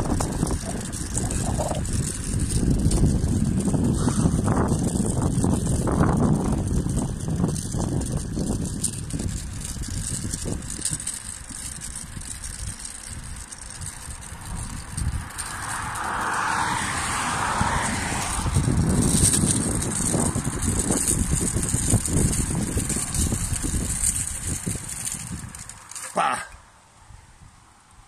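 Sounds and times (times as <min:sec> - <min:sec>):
car passing: 0:00.0 - 0:08.0, 0:14.0 - 0:23.8
wind buffeting microphone: 0:00.0 - 0:25.8
skates rolling on asphalt: 0:00.0 - 0:28.0.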